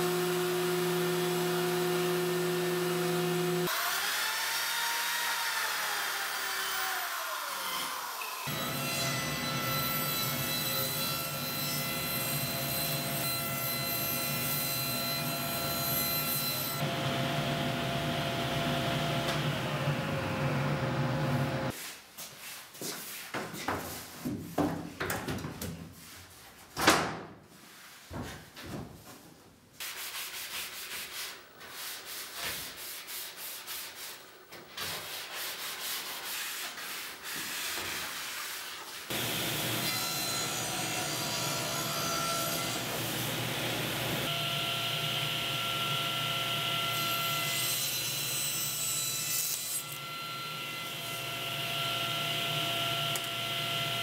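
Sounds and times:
table saw whining: 0.0s - 21.7s, 39.1s - 54.0s
wooden panels knocking and rubbing: 23.4s - 25.9s.

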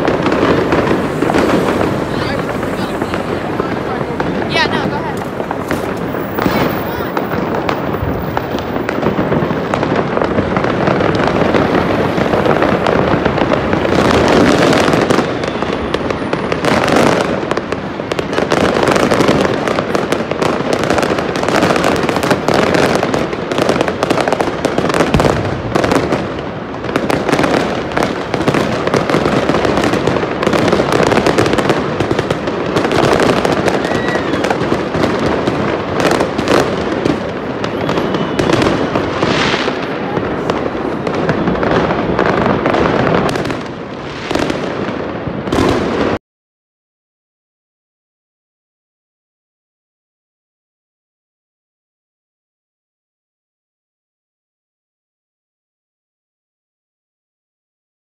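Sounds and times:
fireworks crackling: 0.0s - 46.2s.

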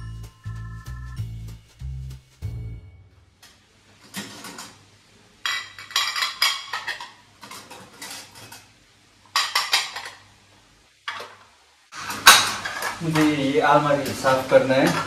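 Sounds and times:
dishes clinking and clattering: 5.4s - 8.7s, 9.3s - 10.3s, 12.0s - 15.0s.

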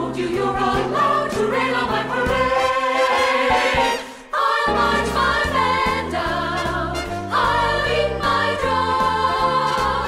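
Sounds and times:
brass and orchestral backing: 2.5s - 5.7s, 6.4s - 7.8s.

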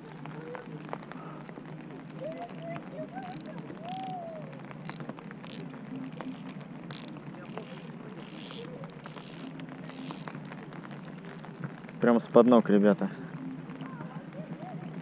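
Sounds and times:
fishing reel ratcheting whir: 2.1s - 2.6s, 3.2s - 4.2s, 4.8s - 11.2s.

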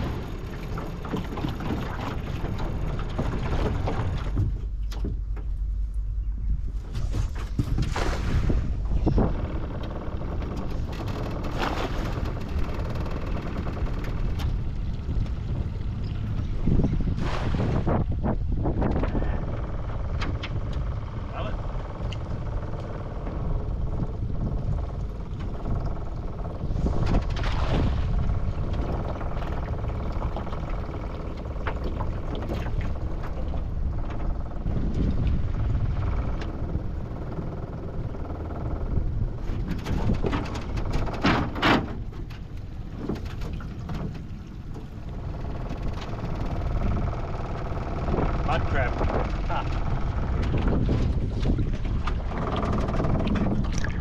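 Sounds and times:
steady low rumble: 0.0s - 54.0s
water splashing off net: 7.8s - 8.6s.

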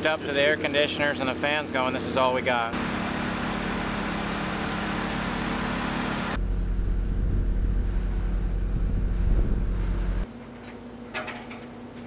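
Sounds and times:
engine running: 0.0s - 10.4s
deep heavy rumble: 6.3s - 10.3s.

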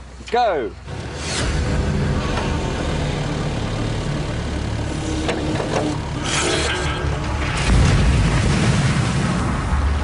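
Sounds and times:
engine idling: 0.8s - 8.6s.

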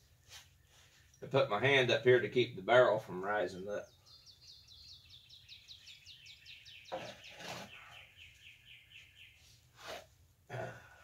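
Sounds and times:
songbird trilling: 3.8s - 9.4s.

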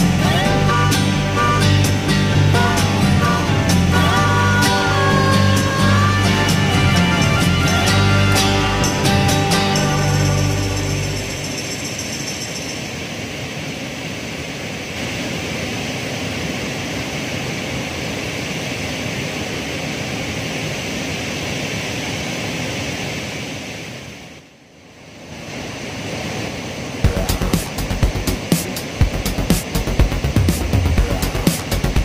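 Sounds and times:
music with a beat: 0.0s - 11.8s, 27.0s - 32.0s
river rushing over rocks: 0.0s - 24.4s, 25.0s - 32.0s.

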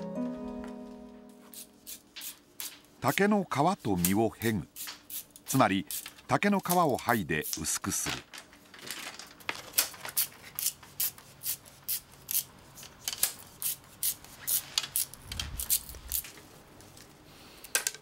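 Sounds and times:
knife splitting bamboo crackles: 9.6s - 16.4s.

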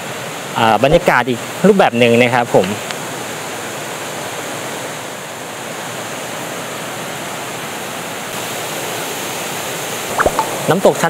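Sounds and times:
water rushing over cascades: 5.7s - 11.0s.

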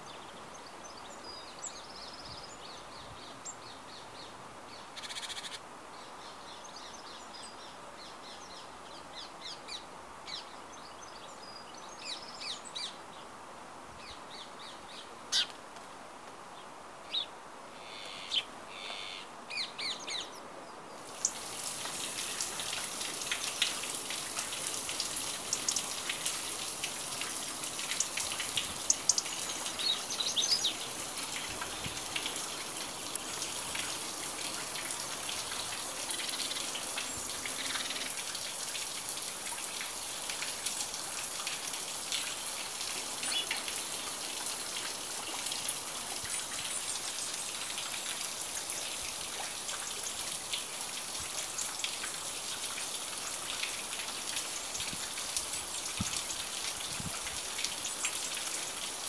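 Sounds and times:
small waterfall hissing: 0.0s - 59.0s
birds calling and chirping: 27.9s - 32.5s.

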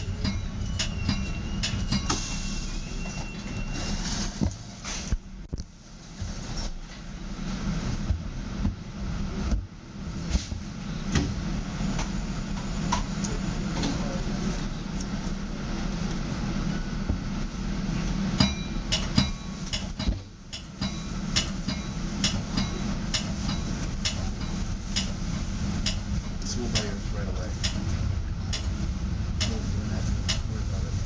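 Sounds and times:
track clicks and knocks: 0.0s - 2.2s, 18.4s - 28.8s, 29.4s - 30.6s
train rumbling on track: 0.0s - 31.0s.

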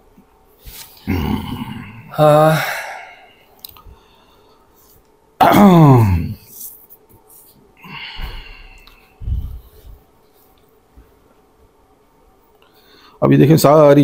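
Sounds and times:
man's falling wordless vocal sound: 1.0s - 3.1s.

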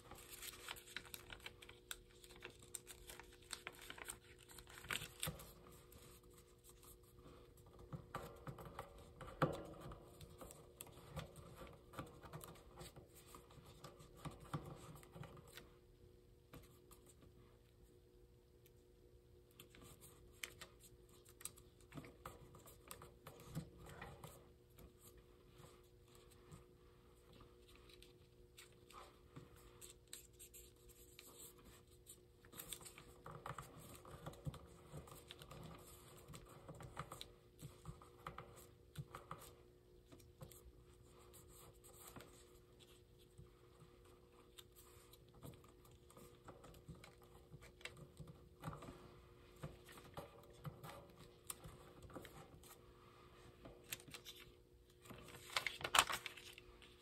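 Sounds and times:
fingers tapping and scraping paper: 0.0s - 15.6s, 27.3s - 52.8s
paper rustling and crinkling: 0.0s - 15.6s, 19.6s - 52.8s, 53.6s - 57.0s.

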